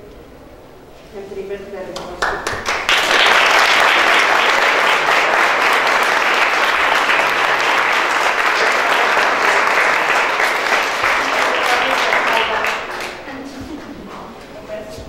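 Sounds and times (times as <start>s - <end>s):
audience applauding: 2.2s - 13.5s.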